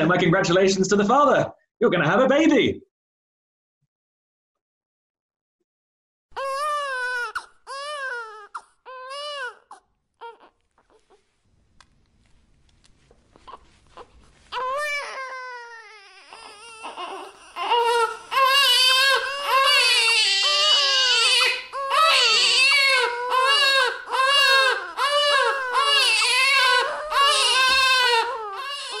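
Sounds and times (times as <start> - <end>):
newborn baby crying: 6.4 - 11.2, 13.4 - 29.0.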